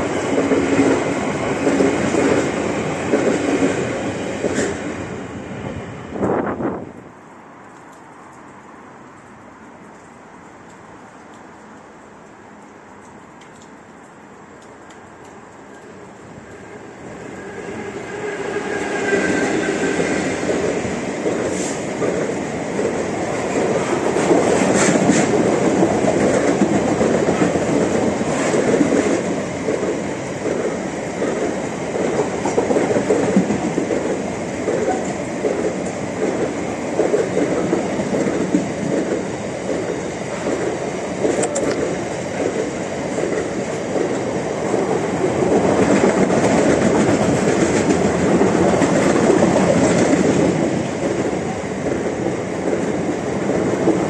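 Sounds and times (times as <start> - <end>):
train wheels clickety-clack: 0.0 - 4.9, 17.7 - 54.0
diesel locomotive passing: 0.0 - 7.2, 14.9 - 54.0.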